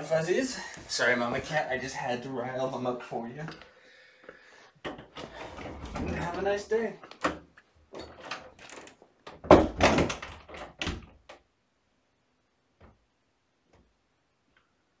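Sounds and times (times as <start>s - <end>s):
door opening and shutting: 4.8s - 11.4s.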